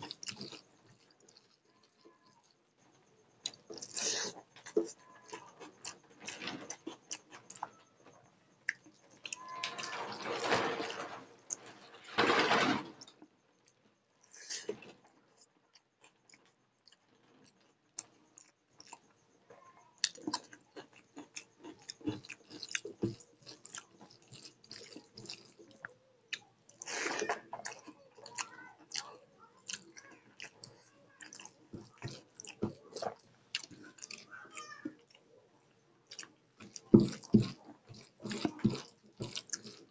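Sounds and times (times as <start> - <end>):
person chewing: 0.0 - 2.6, 3.4 - 7.8, 13.6 - 19.2, 20.0 - 35.2, 36.0 - 39.9.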